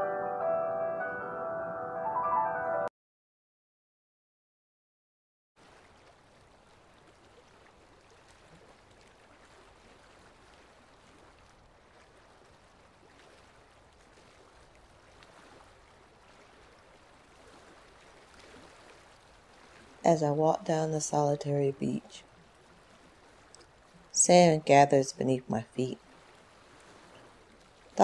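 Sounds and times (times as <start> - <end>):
sea waves washing on shore: 5.6 - 28.0.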